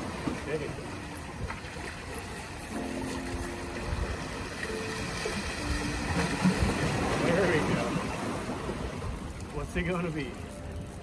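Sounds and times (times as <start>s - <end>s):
wind rumbling on microphone: 0.0s - 11.0s.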